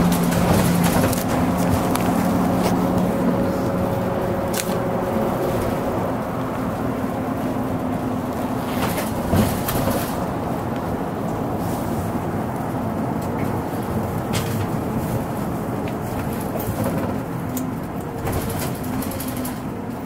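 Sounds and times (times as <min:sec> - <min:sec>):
bus engine and road noise: 0:00.0 - 0:20.0.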